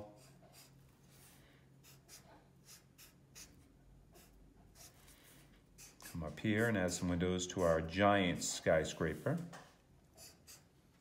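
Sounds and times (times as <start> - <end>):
marker scratching on paper: 0.0 - 9.5, 10.1 - 10.8.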